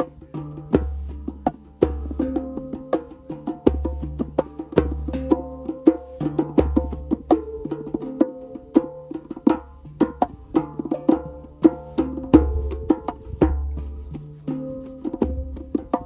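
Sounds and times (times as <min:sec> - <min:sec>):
hand drum strikes: 0:00.0 - 0:16.0
hand pan notes ringing: 0:00.0 - 0:16.0.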